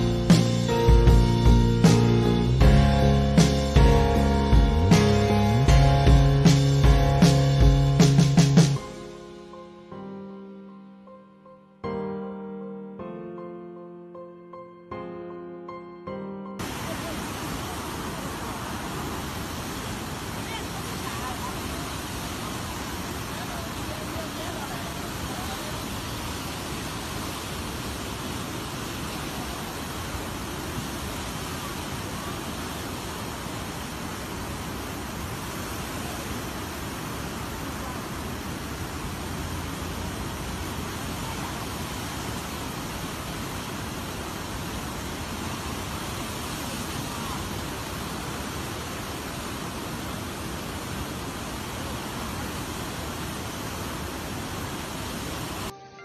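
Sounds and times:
floodwater rushing: 16.6s - 55.7s.

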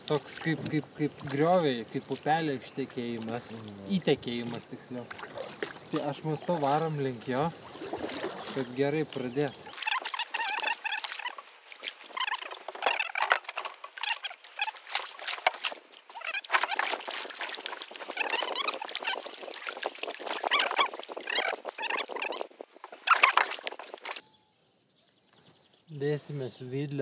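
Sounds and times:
birds chirping: 0.0s - 11.4s, 20.4s - 23.4s, 24.0s - 27.0s
paddle splashing and dripping: 0.0s - 24.3s.

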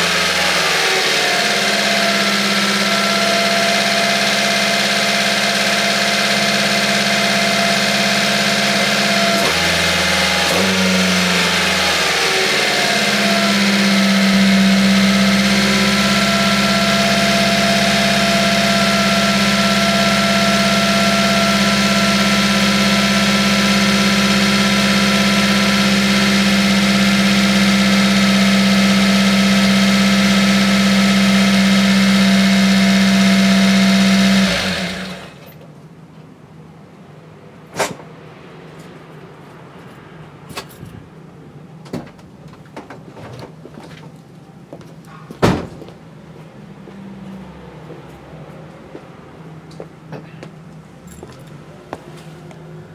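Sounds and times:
engine idling: 0.0s - 35.5s.

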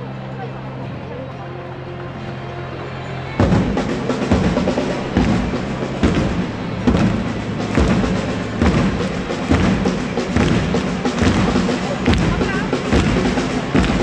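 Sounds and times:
crowd chanting: 0.0s - 14.0s
crowd clapping: 1.7s - 14.0s
drum beating steadily: 3.4s - 14.0s.

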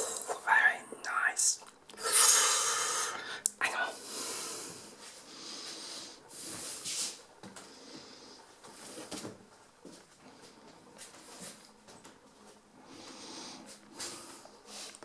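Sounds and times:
noisy breathing and sniffing: 2.0s - 9.1s, 12.7s - 15.0s.

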